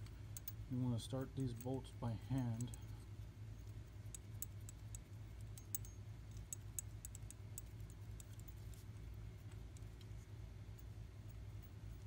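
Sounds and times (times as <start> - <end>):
metallic clicks of bolts: 0.0 - 0.6, 4.1 - 8.6
steady low hum: 0.0 - 12.0.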